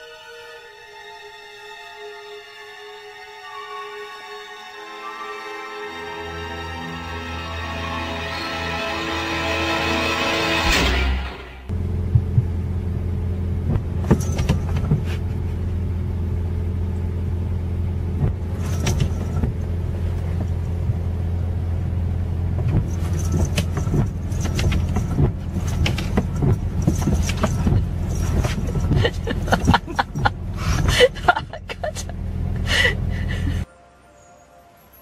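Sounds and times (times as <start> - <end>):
car engine idling: 11.2 - 33.6
taps and knocks on windshield: 13.7 - 15.2, 22.6 - 30.0.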